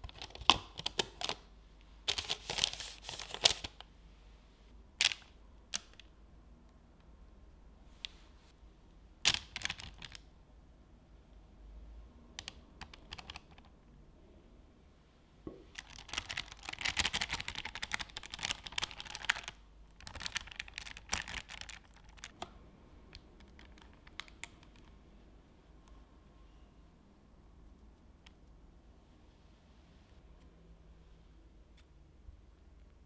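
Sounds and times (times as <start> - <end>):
spatula scraping with paper crinkle: 2.1 - 3.7.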